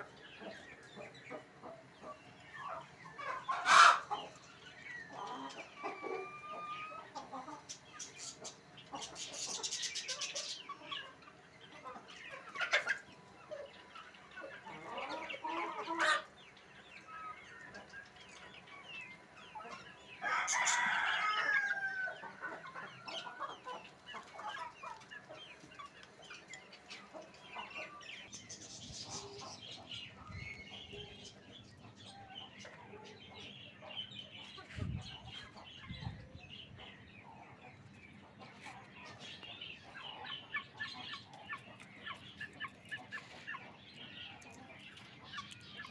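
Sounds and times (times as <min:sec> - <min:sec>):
drawn-out chicken call: 0:00.0 - 0:18.4, 0:19.1 - 0:31.3
chickens clucking: 0:00.0 - 0:45.9.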